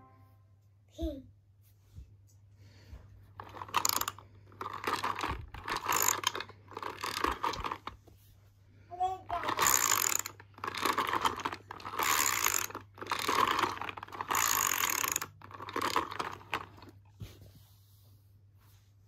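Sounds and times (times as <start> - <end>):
toy ratchet clicking: 3.4 - 7.9, 9.3 - 16.9.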